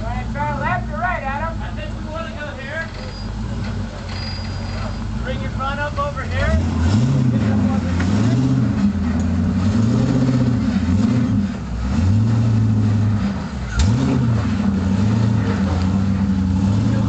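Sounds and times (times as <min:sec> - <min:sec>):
buggy engine revving: 0:00.0 - 0:17.0.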